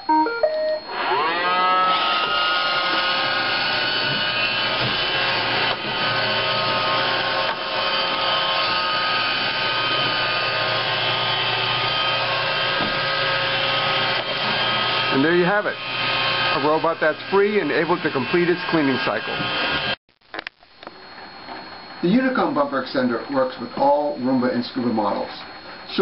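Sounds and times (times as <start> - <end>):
robot vacuum motor whine: 0.1 - 20.0.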